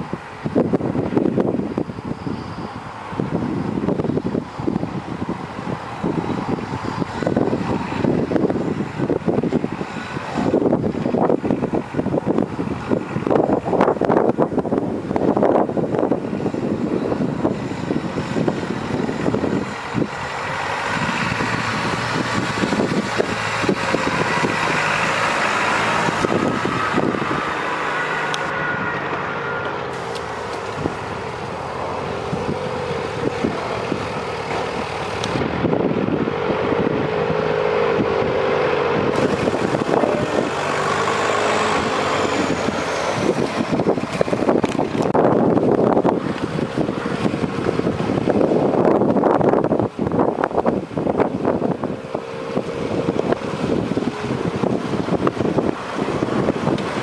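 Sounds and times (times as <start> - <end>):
distant off-road vehicle engine revving: 17.0 - 57.0.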